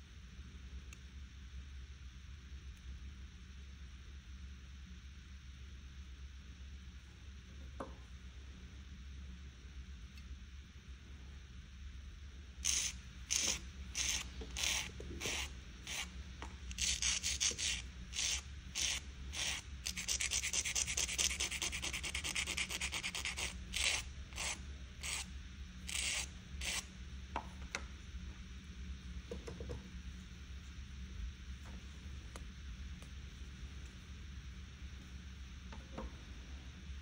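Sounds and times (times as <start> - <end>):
nail file scraping fingernail: 12.6 - 16.1, 16.7 - 25.3, 25.9 - 26.8.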